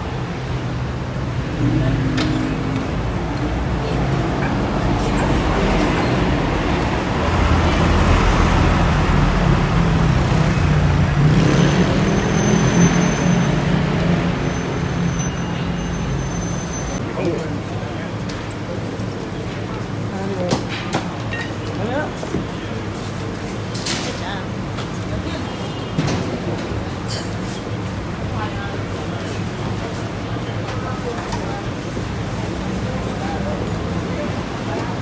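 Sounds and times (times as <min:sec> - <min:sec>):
bus passing: 0:00.0 - 0:20.4
cars passing: 0:00.0 - 0:20.7.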